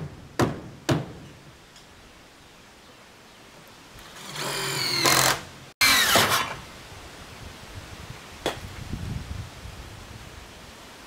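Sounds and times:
small motorised hand tool: 4.1s - 6.5s.

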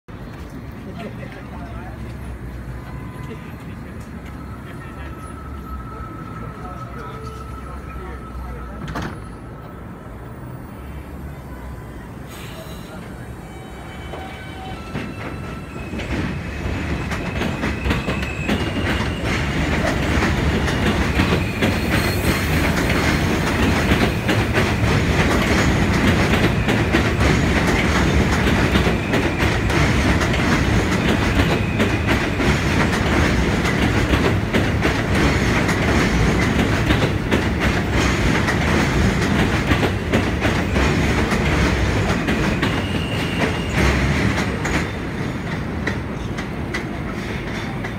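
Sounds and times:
train rumble: 0.1s - 47.9s
wheel clickety-clack: 14.9s - 47.9s.

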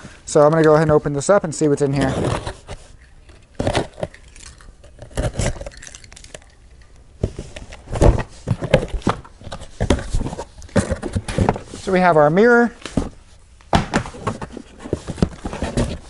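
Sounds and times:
cardboard box knocks and scrapes: 13.8s - 16.0s.

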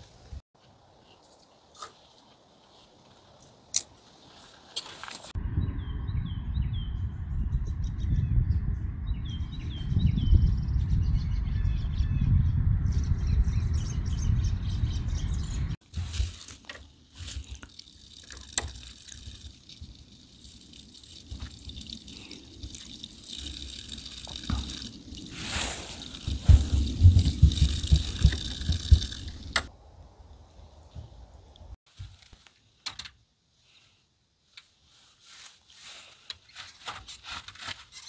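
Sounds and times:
low rumble: 5.4s - 15.8s
water trickling from a tap: 16.6s - 25.4s.

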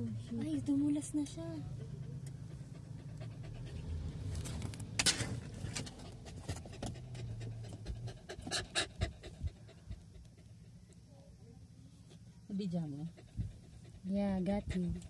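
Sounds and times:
diesel engine running: 0.0s - 10.8s.

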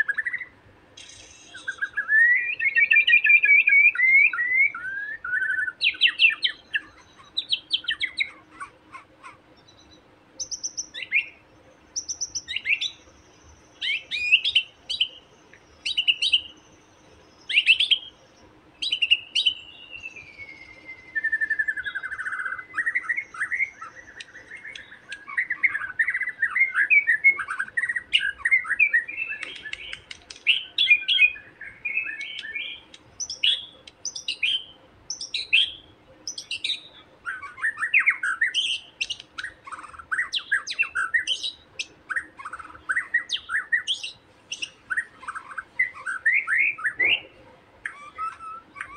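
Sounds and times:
bird singing whistled phrases: 0.0s - 8.7s, 9.8s - 11.4s, 12.0s - 13.0s, 13.7s - 15.2s, 15.8s - 16.6s, 17.4s - 18.2s, 18.8s - 48.9s
rapid bird chattering: 5.4s - 16.5s, 18.8s - 48.9s.

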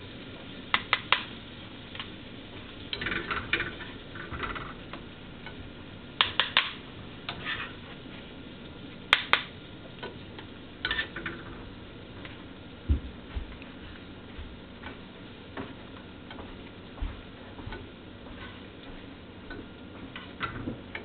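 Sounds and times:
metal utensil scraping a pot: 7.3s - 7.8s, 10.8s - 11.5s.

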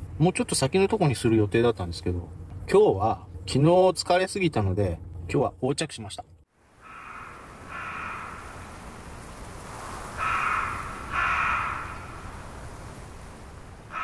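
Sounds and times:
background hiss: 6.5s - 14.0s
crow cawing: 6.7s - 8.7s, 10.1s - 12.4s.

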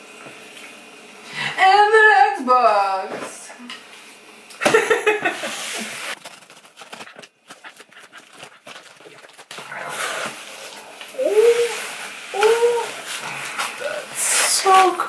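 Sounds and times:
paper packing rustling: 5.7s - 13.1s.

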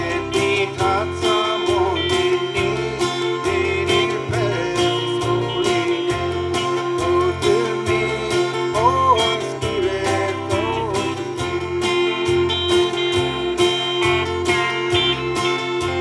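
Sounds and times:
man singing: 0.0s - 11.9s
low bass line: 0.0s - 16.0s
strummed acoustic guitar: 0.0s - 16.0s.

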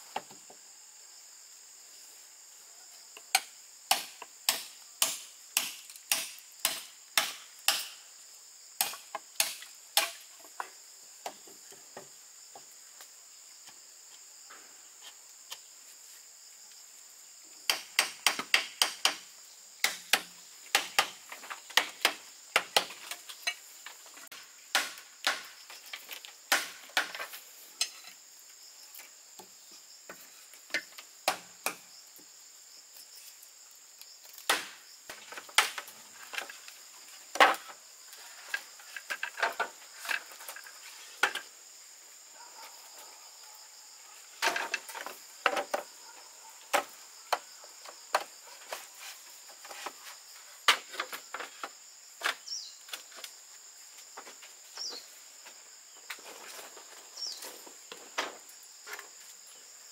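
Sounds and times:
high insect trill: 0.0s - 59.9s
tool striking bamboo: 3.3s - 8.0s, 8.8s - 10.3s, 17.7s - 23.6s, 24.7s - 25.5s, 26.5s - 27.2s, 30.7s - 31.8s, 34.5s - 34.8s.

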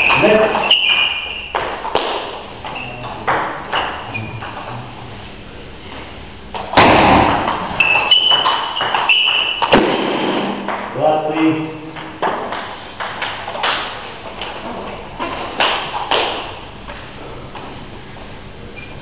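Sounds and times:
loud thump: 6.7s - 7.6s, 9.6s - 10.7s.

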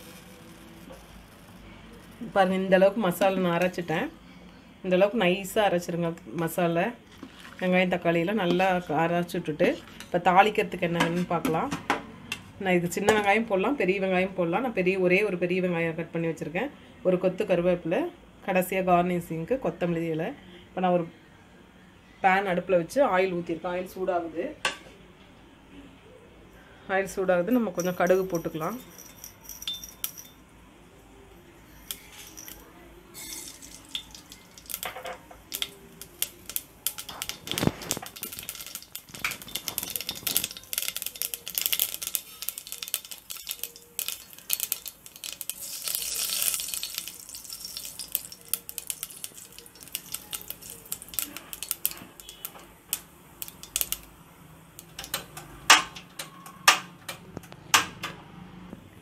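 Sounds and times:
seeds popping in hot oil: 0.0s - 3.9s, 31.7s - 56.9s
oil sizzling: 0.0s - 4.1s, 31.5s - 56.1s.

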